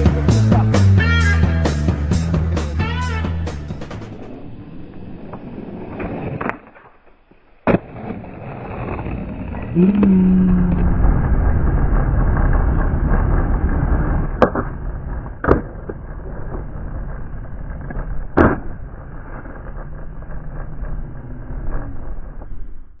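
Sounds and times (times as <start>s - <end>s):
skateboard wheels rolling on asphalt: 2.7s - 23.0s
skateboard wooden clacks: 5.3s - 22.9s.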